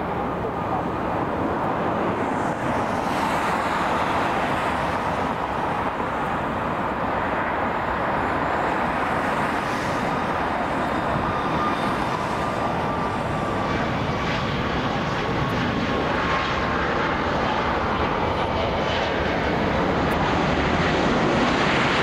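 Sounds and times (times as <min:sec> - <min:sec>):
jet engine whine: 0:00.0 - 0:22.0
road traffic roar: 0:00.0 - 0:22.0.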